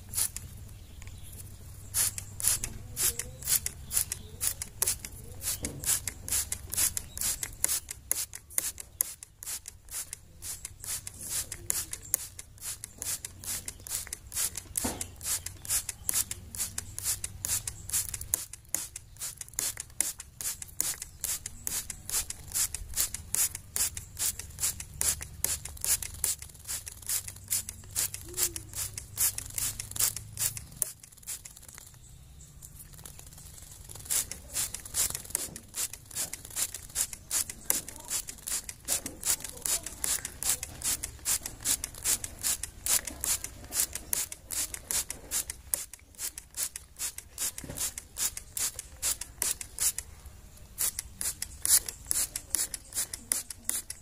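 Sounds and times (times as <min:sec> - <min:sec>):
spray bottle hissing mist: 0:00.0 - 0:00.5, 0:01.8 - 0:31.8, 0:33.4 - 0:54.0.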